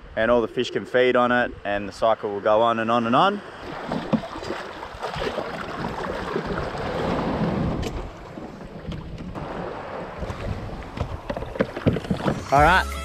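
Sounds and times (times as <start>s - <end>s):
small waves washing: 3.0s - 12.6s
wind buffeting microphone: 3.6s - 12.7s.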